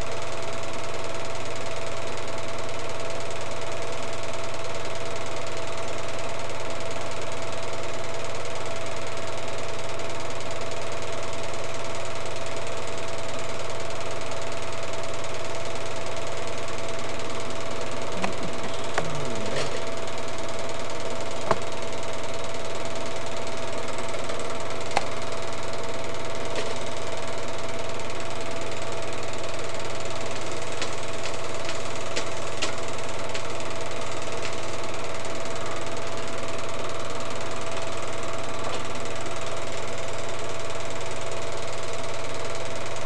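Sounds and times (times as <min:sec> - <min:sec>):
film projector whirring: 0:00.0 - 0:43.0
constant hum: 0:16.3 - 0:34.8.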